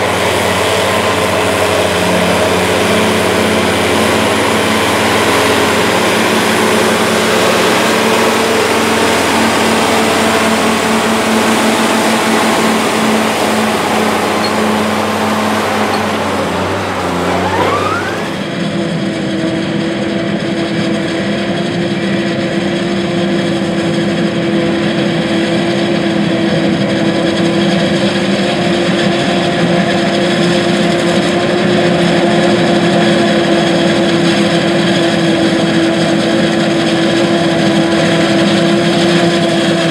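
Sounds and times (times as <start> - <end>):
forage harvester chopping corn: 0.0 - 18.5
tractor diesel engine under load: 0.0 - 39.9.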